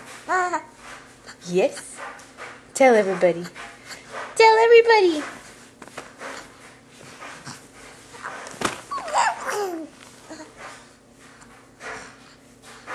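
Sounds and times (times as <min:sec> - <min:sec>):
baby cooing and babbling: 0:08.9 - 0:10.5.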